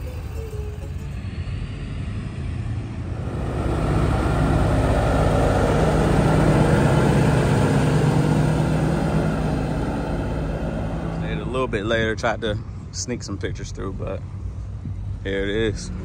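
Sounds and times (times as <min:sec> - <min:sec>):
truck diesel engine passing: 0:00.0 - 0:12.7.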